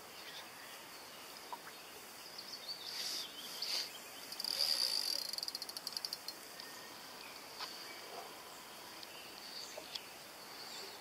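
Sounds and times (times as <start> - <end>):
fishing reel drag buzzing: 4.3 - 6.3.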